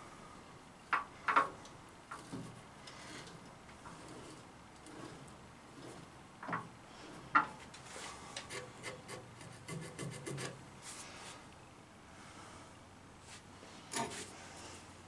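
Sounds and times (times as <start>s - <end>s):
light ticks and metal rubbing: 1.0s - 9.0s.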